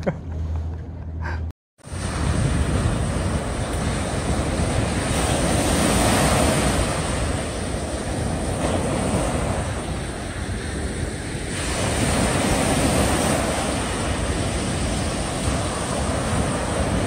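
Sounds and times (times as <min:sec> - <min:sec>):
waves washing onto beach: 0:01.8 - 0:17.0.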